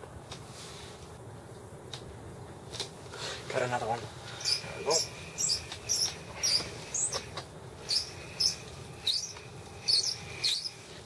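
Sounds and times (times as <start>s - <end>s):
squeaky fishing reel cranking: 7.9s - 10.7s.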